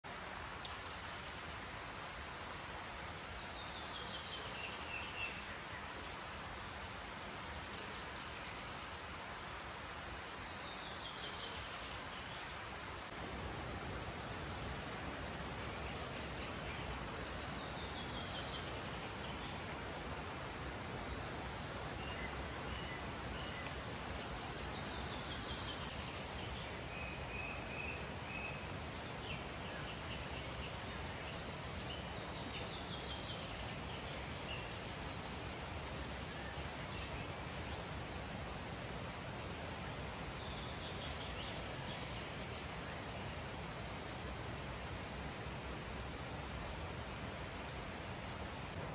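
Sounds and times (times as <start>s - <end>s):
steady hiss: 0.1s - 29.8s.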